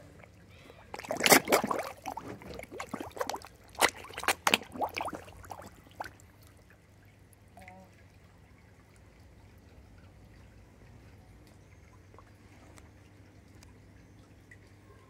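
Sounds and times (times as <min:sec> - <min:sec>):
fish splashing and gulping: 0:00.0 - 0:08.2.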